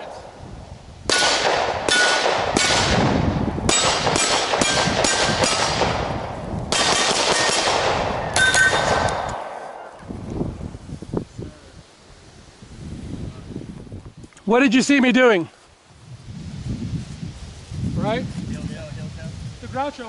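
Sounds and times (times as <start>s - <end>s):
pistol shots: 1.1s - 9.9s
steel targets clanging: 8.3s - 9.3s.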